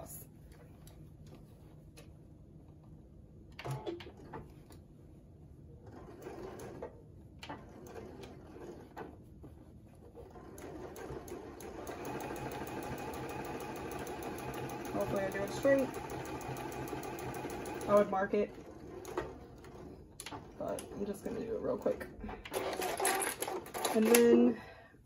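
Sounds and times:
sewing machine stitching: 0:05.8 - 0:09.2, 0:10.2 - 0:24.3.

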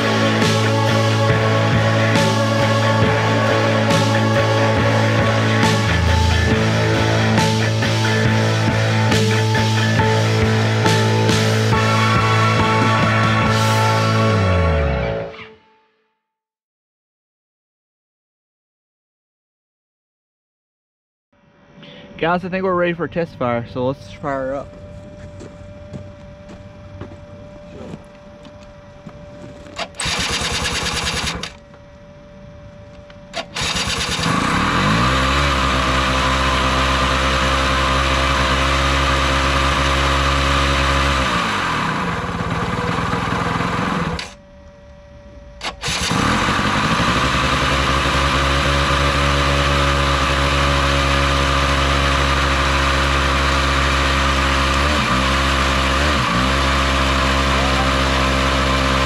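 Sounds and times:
two-stroke engine idling: 0:00.0 - 0:14.2, 0:23.4 - 0:31.6, 0:33.3 - 0:44.4, 0:45.6 - 0:59.0
electric starter cranking: 0:00.0 - 0:14.3, 0:29.5 - 0:31.8, 0:33.0 - 0:44.4, 0:45.6 - 0:59.0.

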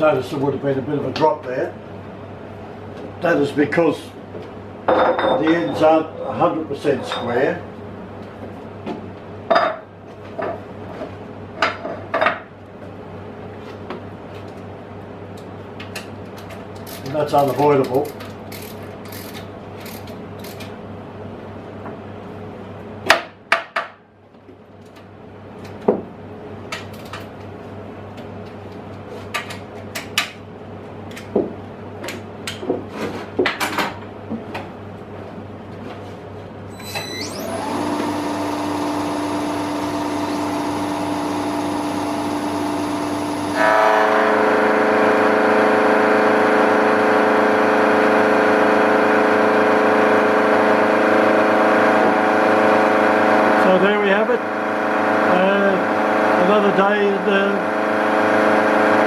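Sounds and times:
power feed drive tones: 0:36.7 - 0:59.0
milling machine spindle motor hum: 0:36.9 - 0:59.0.

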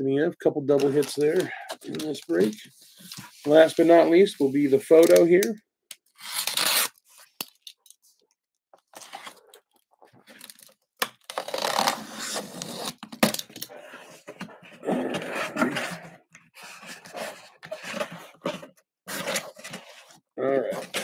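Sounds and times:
cardboard rustling and tearing: 0:16.7 - 0:21.0.

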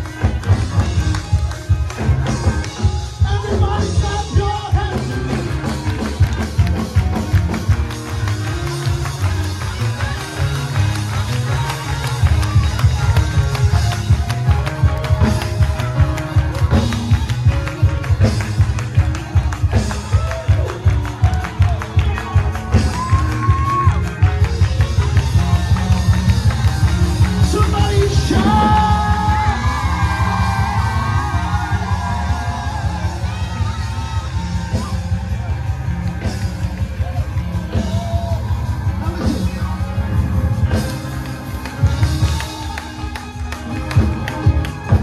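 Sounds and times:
church band playing praise music: 0:00.0 - 0:45.0
keyboard: 0:00.0 - 0:45.0
person singing into microphone: 0:03.2 - 0:05.4, 0:27.4 - 0:29.7.

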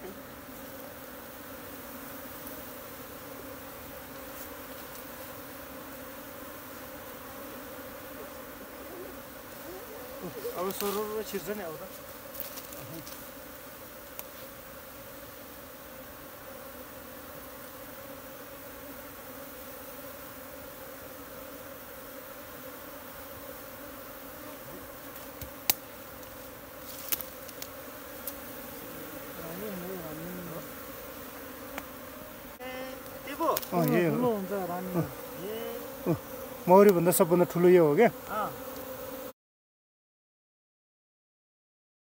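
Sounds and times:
honey bees buzzing: 0:00.0 - 0:39.4.

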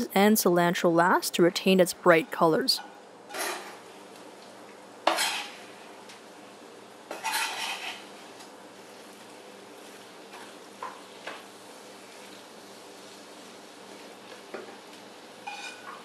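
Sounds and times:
faint sizzle: 0:00.0 - 0:16.0
knife scraping cutting board: 0:05.1 - 0:05.6, 0:07.1 - 0:08.2, 0:15.4 - 0:16.0
wooden spatula stirring in pan: 0:05.1 - 0:05.6, 0:07.1 - 0:16.0.

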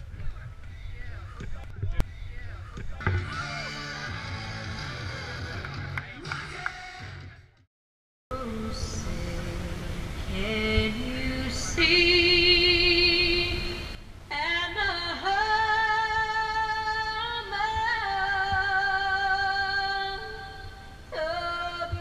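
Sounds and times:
woman singing with vibrato: 0:08.3 - 0:22.0.

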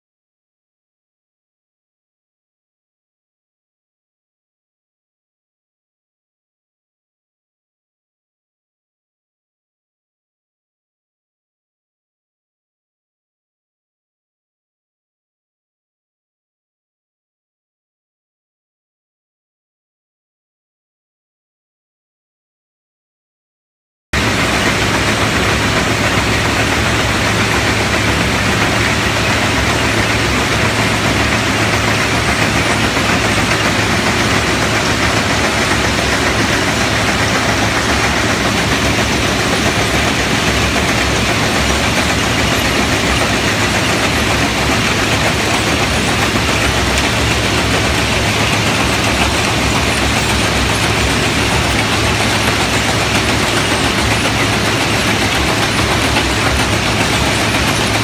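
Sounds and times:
diesel locomotive engine droning: 0:24.2 - 0:58.0.

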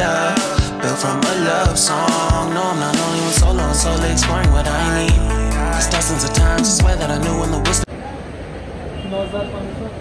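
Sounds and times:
song with drum beat and vocals: 0:00.0 - 0:07.9.

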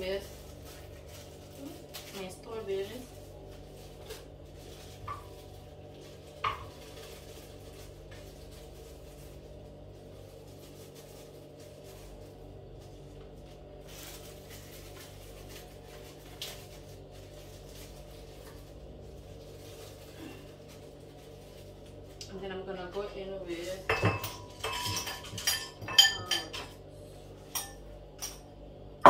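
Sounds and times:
steady low hum: 0:00.0 - 0:29.0
kitchenware clinking on a counter: 0:23.8 - 0:26.8, 0:27.5 - 0:28.5.

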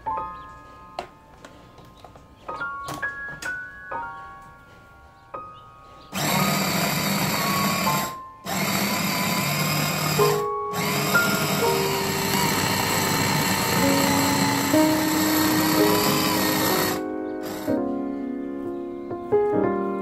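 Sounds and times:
soft plucked background music: 0:00.0 - 0:06.1, 0:10.1 - 0:20.0
electric chopper motor grinding: 0:06.1 - 0:17.8.

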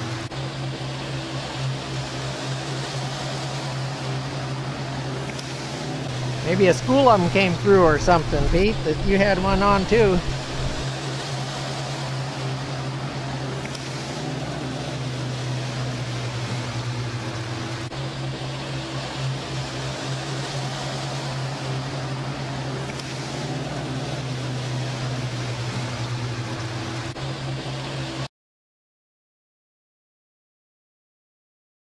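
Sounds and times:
outboard motors idling: 0:00.0 - 0:28.3
wind and water hiss: 0:00.0 - 0:28.3.

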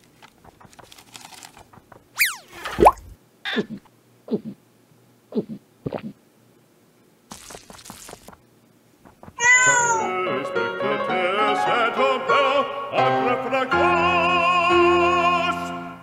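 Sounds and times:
cat meowing: 0:09.4 - 0:10.1.

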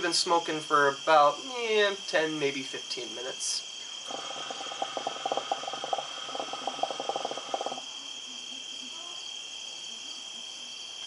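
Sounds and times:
crickets chirping: 0:00.0 - 0:11.0
hookah water bubbling: 0:04.0 - 0:07.8.

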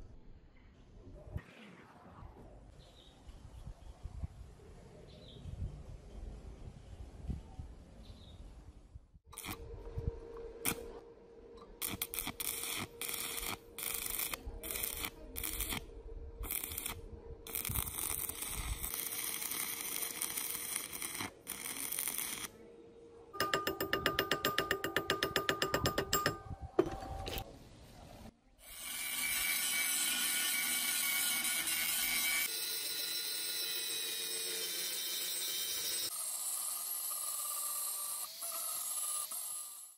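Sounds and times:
welding arc crackling: 0:11.8 - 0:15.8, 0:16.4 - 0:22.5.

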